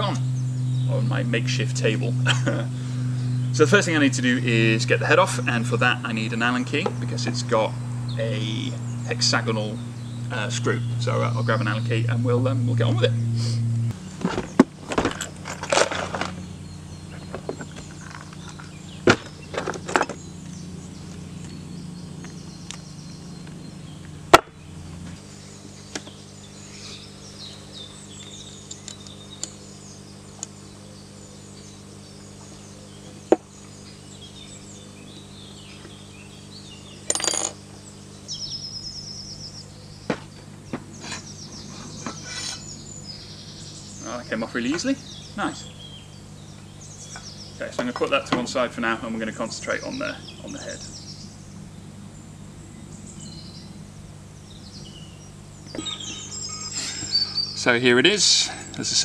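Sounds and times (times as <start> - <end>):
birds chirping: 0.0 - 59.0
metal tools clinking: 37.1 - 37.6.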